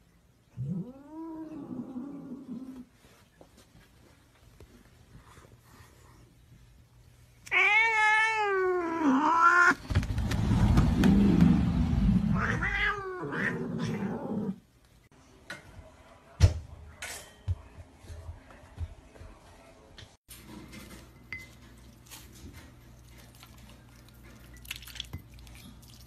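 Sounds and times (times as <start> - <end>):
cat yowling: 7.5 - 9.8, 12.3 - 14.5.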